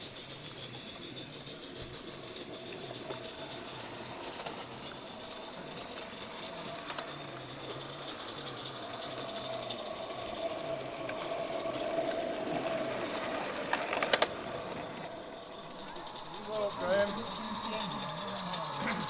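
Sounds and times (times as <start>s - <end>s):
model steam locomotive running: 0.0s - 19.0s.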